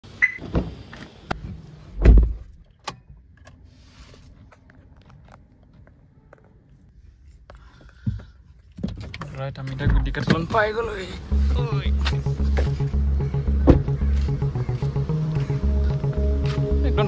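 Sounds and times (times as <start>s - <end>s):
car door thump: 2.0s - 2.5s, 13.6s - 14.0s.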